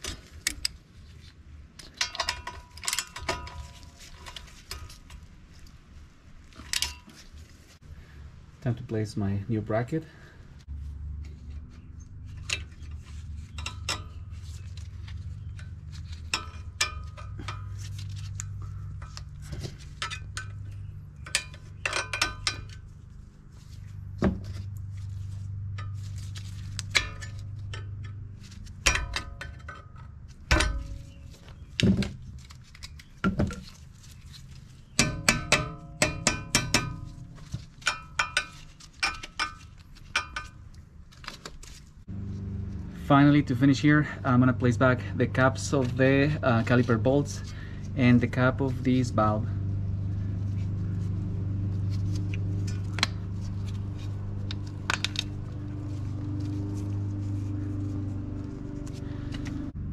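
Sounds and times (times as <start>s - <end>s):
steady low hum: 0.0s - 59.9s
hand tools clinking on metal: 13.5s - 14.4s, 15.2s - 22.9s.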